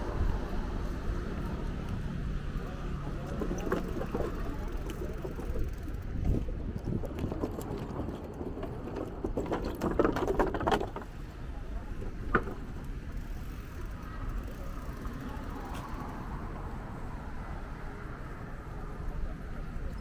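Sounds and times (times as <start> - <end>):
low rumble of road and traffic: 0.0 - 20.0
bicycle rattling clicks: 3.3 - 11.2, 12.1 - 16.3.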